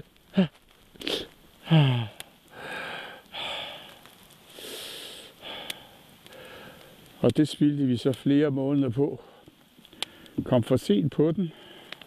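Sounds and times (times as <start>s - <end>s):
man groaning: 0.3s - 0.6s, 1.6s - 2.2s
heavy breathing: 0.4s - 7.0s
man grunting: 1.7s - 2.2s.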